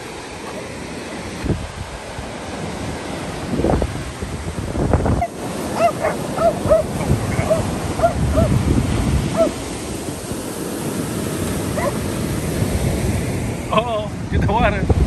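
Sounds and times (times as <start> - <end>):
surf breaking on beach: 0.0 - 15.0
wind on microphone: 0.0 - 15.0
dog barking: 5.2 - 8.6, 9.3 - 9.6, 11.7 - 12.0.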